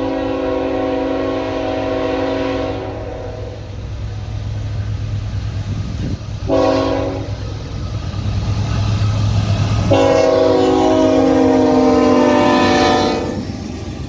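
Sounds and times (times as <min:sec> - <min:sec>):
locomotive air horn: 0:00.0 - 0:03.7, 0:06.4 - 0:07.4, 0:09.8 - 0:13.4
freight train rumbling: 0:00.0 - 0:14.0.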